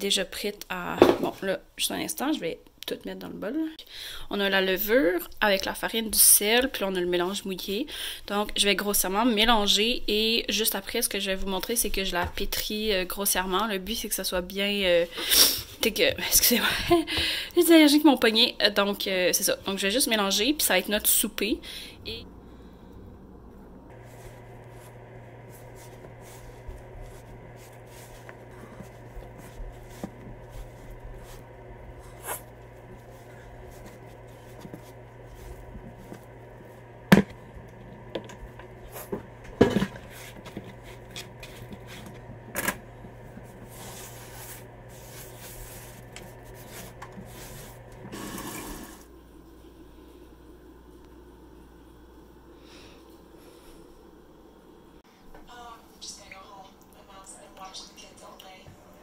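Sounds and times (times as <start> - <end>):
steady low hum: 19.0 - 59.0
dough kneading squishing: 23.9 - 48.3.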